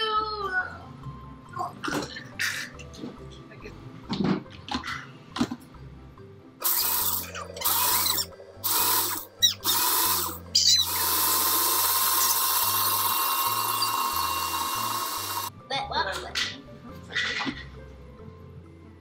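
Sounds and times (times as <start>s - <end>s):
blender motor running: 6.6s - 15.5s.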